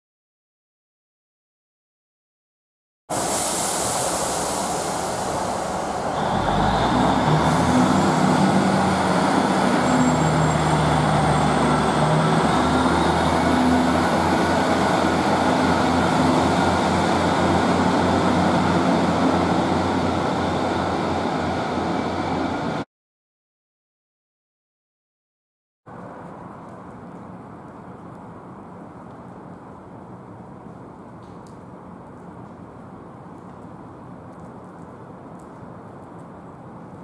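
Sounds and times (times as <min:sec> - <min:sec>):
diesel train engine rumble: 0:03.1 - 0:22.8.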